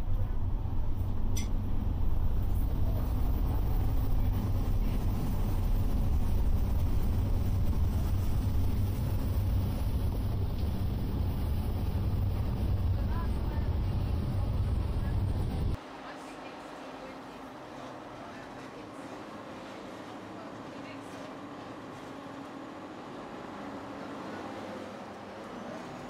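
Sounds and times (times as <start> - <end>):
boat engines droning: 0.0 - 26.0.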